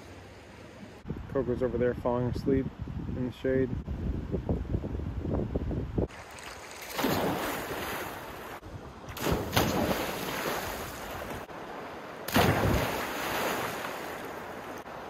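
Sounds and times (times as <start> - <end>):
people splashing into water: 6.1 - 11.5, 12.3 - 14.9
churning rushing water: 9.2 - 15.0.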